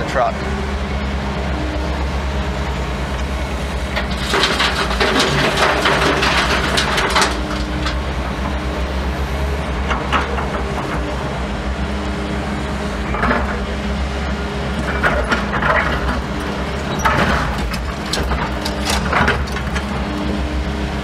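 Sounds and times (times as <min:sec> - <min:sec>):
excavator diesel engine running: 0:00.0 - 0:21.0
concrete rattling into truck: 0:03.9 - 0:08.6, 0:14.8 - 0:20.1.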